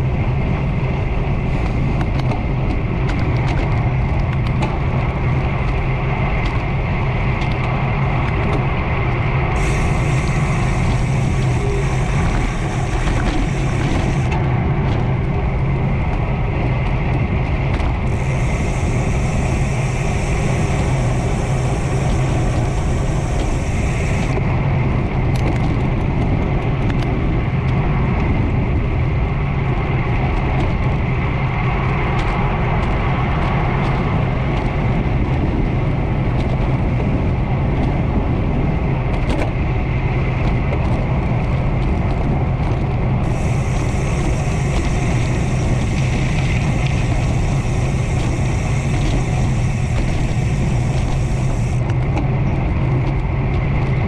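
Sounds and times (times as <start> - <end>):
bicycle tyre noise on road: 0.0 - 54.0
bike ticks and rattles: 0.0 - 54.0
wind: 0.0 - 54.0
high hiss: 9.5 - 14.4, 18.1 - 24.4, 43.2 - 51.8.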